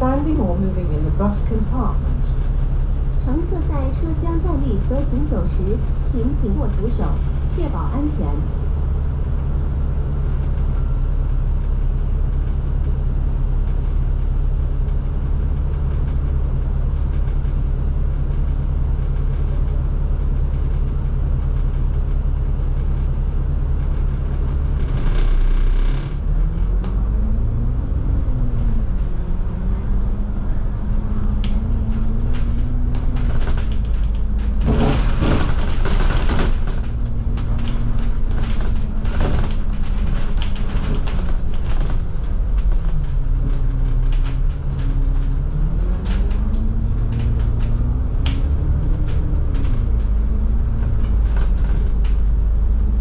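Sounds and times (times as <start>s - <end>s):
bus diesel engine droning: 0.0s - 53.0s
rattling noise: 23.1s - 53.0s.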